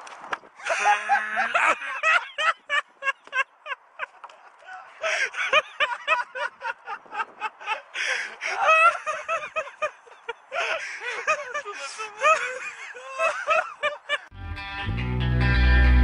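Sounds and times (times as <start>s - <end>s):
person laughing hard: 0.6s - 14.3s
electric guitar music: 14.3s - 16.0s.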